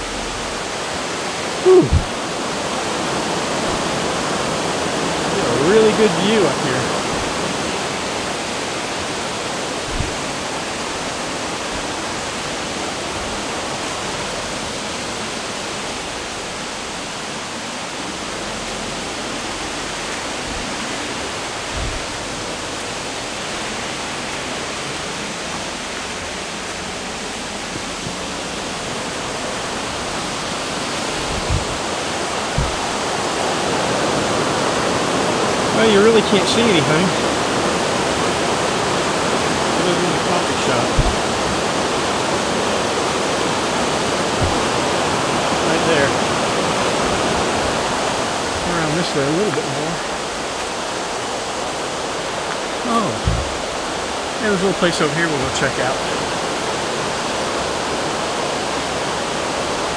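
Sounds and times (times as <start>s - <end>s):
faint low thumps: 0.0s - 2.3s, 9.8s - 11.0s, 21.6s - 23.0s, 26.0s - 34.3s, 40.5s - 45.7s, 53.1s - 54.0s
waterfall and river rushing: 0.0s - 59.9s.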